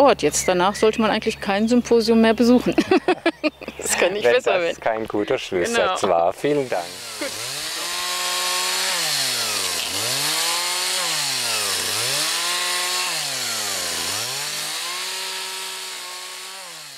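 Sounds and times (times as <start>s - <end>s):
chainsaw engine revving: 6.4s - 16.9s.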